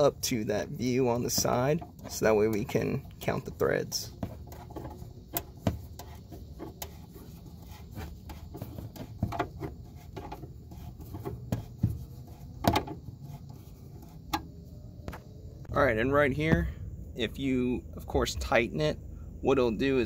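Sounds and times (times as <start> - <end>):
screwdriver clicking and scraping: 4.2 - 14.5
low rumble: 13.0 - 20.0.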